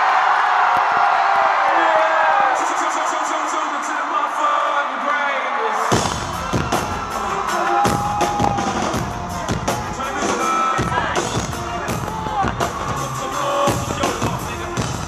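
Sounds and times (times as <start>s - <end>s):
rock drum solo: 5.9s - 15.0s.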